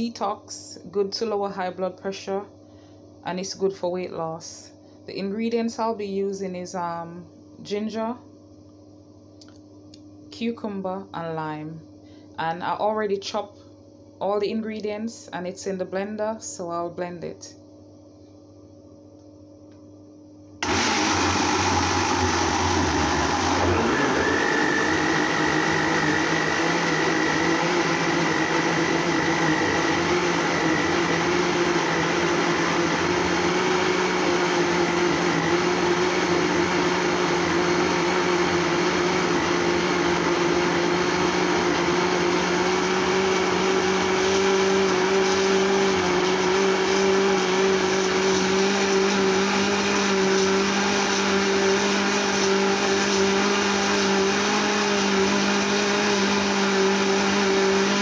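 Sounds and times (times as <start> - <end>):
blender motor running: 20.6 - 58.0.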